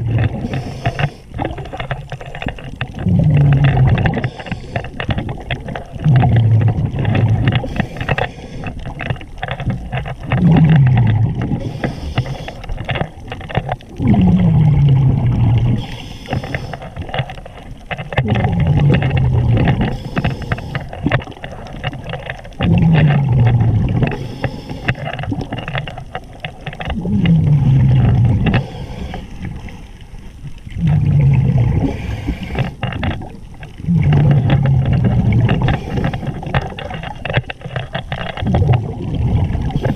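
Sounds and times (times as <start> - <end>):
exhaled bubbles underwater: 0.0 - 39.9
regulator inhale hiss: 0.4 - 1.4, 4.1 - 5.1, 7.6 - 8.8, 11.6 - 12.8, 15.7 - 17.0, 19.9 - 20.9, 24.1 - 25.2, 28.5 - 30.0, 31.8 - 32.8, 35.6 - 36.5.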